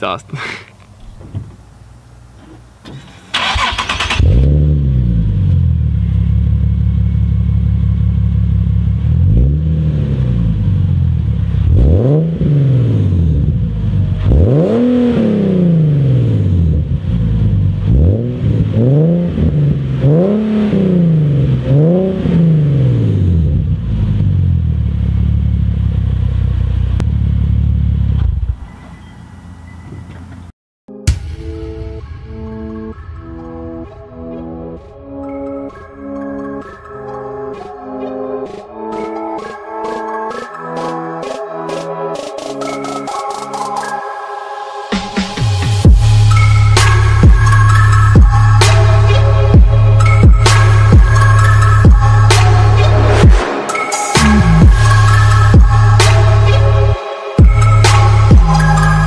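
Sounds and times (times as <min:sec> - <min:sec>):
car engine idling and revving: 0:00.7 - 0:30.5, 0:45.2 - 0:53.5, 0:54.2 - 0:59.0.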